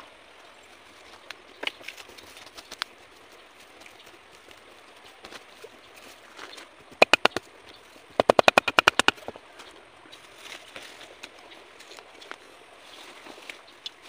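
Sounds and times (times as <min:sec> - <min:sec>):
sharp rapid knocks: 0:07.0 - 0:07.4, 0:08.2 - 0:09.2.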